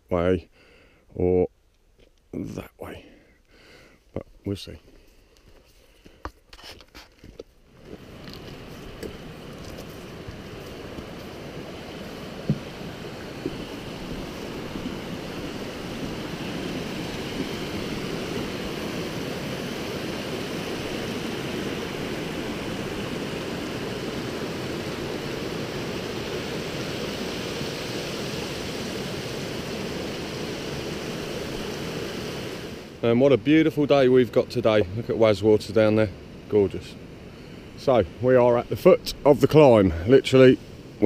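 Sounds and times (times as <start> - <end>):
stream rushing over rocks: 7.7 - 33.0.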